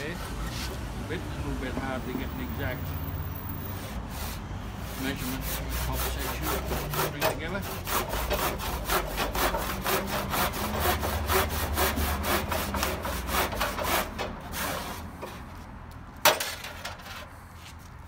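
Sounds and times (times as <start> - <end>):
handsaw rasping through plaster: 3.7 - 15.4.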